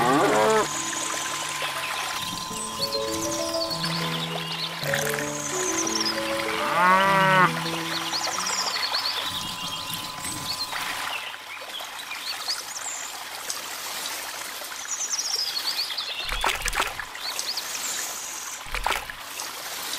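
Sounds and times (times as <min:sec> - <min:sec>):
birds chirping: 0:00.0 - 0:11.4
water trickling and pouring: 0:00.0 - 0:15.0, 0:16.2 - 0:17.3, 0:18.1 - 0:19.9.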